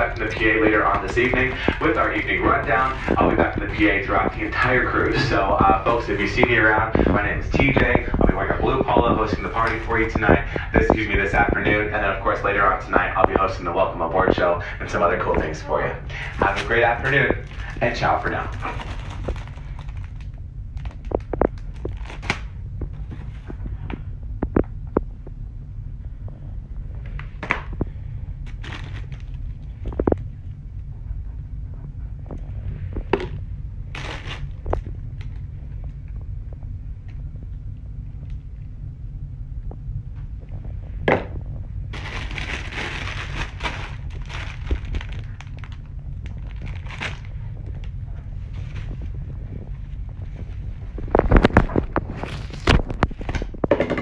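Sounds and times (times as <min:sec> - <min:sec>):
plastic bags rustling: 0:00.0 - 0:23.5, 0:27.7 - 0:30.2, 0:33.2 - 0:35.4, 0:41.9 - 0:53.9
plastic crinkling: 0:00.0 - 0:23.6, 0:27.1 - 0:30.5, 0:33.0 - 0:36.1, 0:41.9 - 0:53.8
steady low hum: 0:00.0 - 0:54.0.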